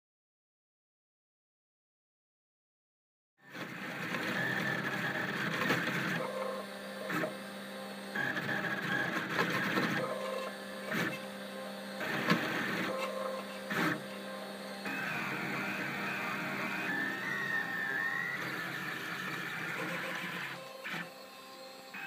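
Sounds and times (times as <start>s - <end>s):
stepper motors whining: 3.6s - 22.0s.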